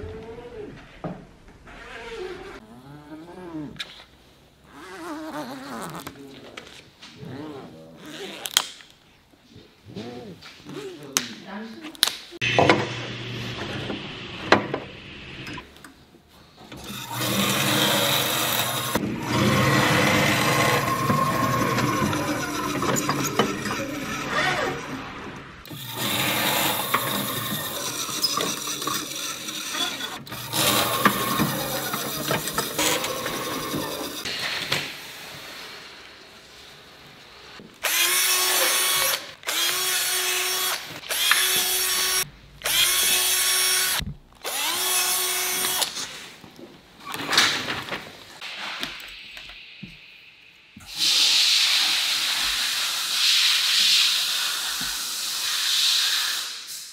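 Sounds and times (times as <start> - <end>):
drilling machine drilling metal: 16.8 - 34.3
electric drill whining: 16.8 - 34.3, 37.8 - 46.0.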